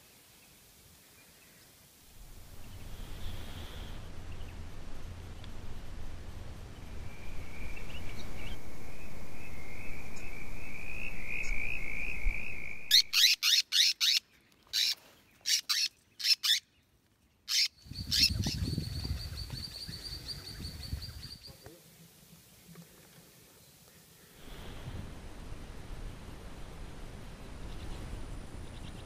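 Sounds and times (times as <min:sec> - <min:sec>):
parrot trilling: 0:12.9 - 0:16.6, 0:17.5 - 0:18.3.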